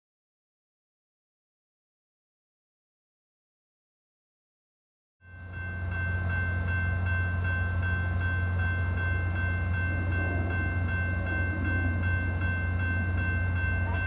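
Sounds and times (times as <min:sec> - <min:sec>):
railroad crossing bell ringing: 0:05.2 - 0:14.0
diesel train engine rumble: 0:05.3 - 0:14.0.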